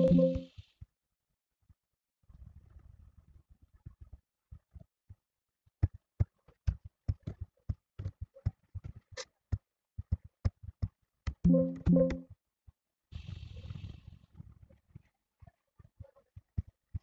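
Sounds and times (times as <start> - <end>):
keyboard and mouse clicking: 11.5 - 12.2.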